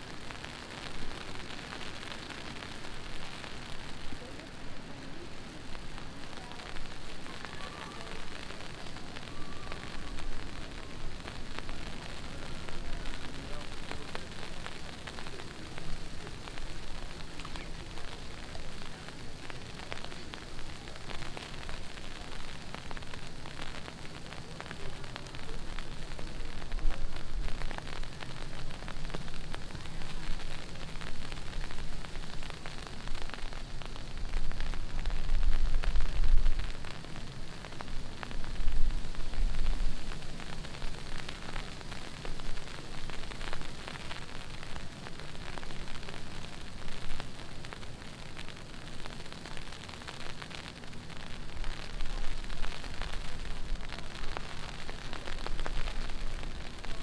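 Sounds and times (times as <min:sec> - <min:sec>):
heavy rain splashing: 0:00.0 - 0:57.0.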